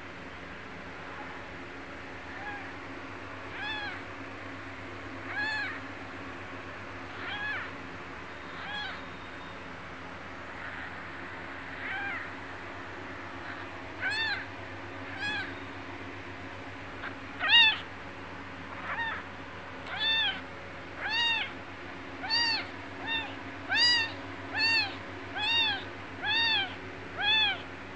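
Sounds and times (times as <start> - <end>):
kitten mewing: 2.3 - 2.7, 3.5 - 4.0, 5.3 - 5.8, 7.1 - 7.8, 8.6 - 9.1, 11.7 - 12.4, 13.4 - 14.5, 15.1 - 15.6, 17.0 - 17.9, 18.7 - 21.6, 22.2 - 27.7.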